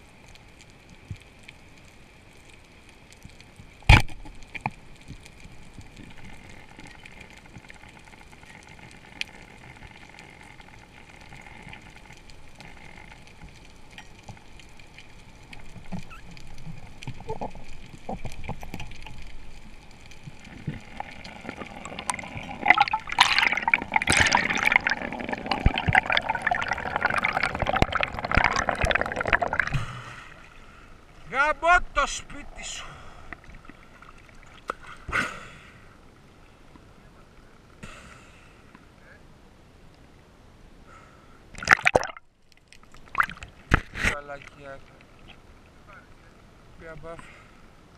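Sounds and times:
low underwater hiss: 0:00.0 - 0:47.9
water rushing and gurgling: 0:11.2 - 0:36.4.

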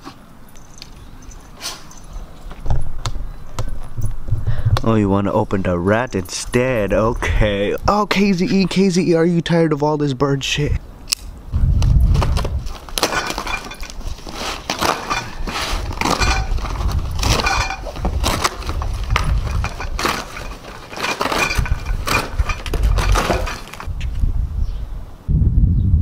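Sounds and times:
cardboard ripping and crackling: 0:12.1 - 0:23.9.

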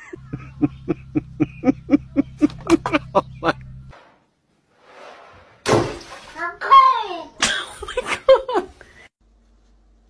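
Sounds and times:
steady low hum: 0:00.0 - 0:03.9.

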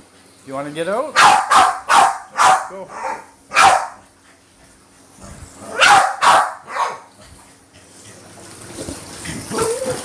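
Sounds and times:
dog barking: 0:01.2 - 0:04.0, 0:05.7 - 0:07.1.

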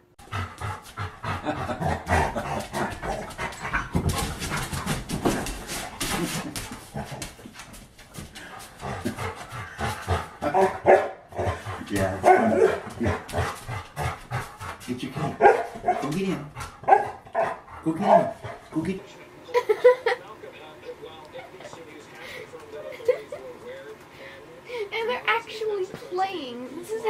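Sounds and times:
dog barking: 0:10.4 - 0:11.5, 0:12.2 - 0:13.2, 0:15.3 - 0:16.1, 0:16.8 - 0:18.4.

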